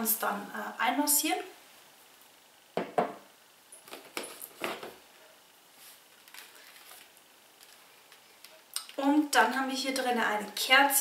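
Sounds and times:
products rustling in box: 5.9 - 8.2.

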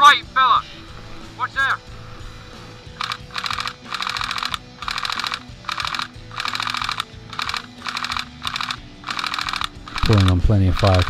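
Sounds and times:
airsoft rifle firing bursts: 3.0 - 11.0.

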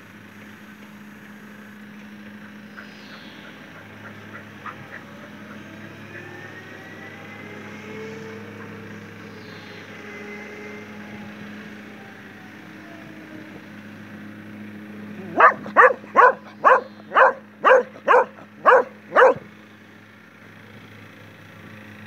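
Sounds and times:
steady low hum: 13.6 - 22.0
dog barking: 15.2 - 19.5.

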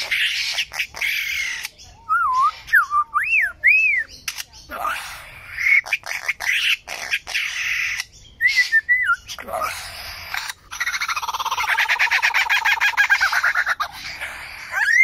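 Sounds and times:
lyrebird calling: 0.0 - 15.0
fast rattling bird trill: 9.9 - 15.0.

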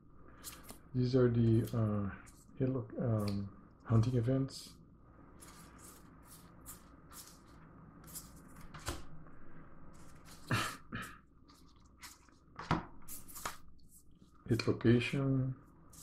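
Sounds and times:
cards sliding and rustling: 5.4 - 9.1, 9.9 - 10.5, 11.5 - 13.9.

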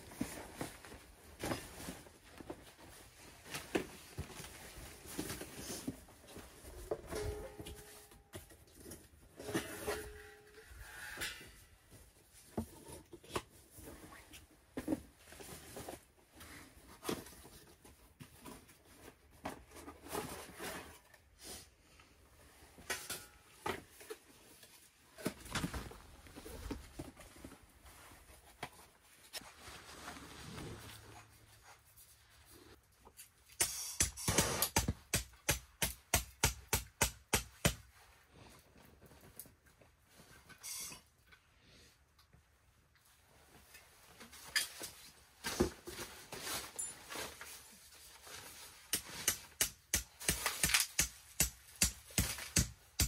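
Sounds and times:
camping gear rustling and clicking: 43.5 - 49.6.

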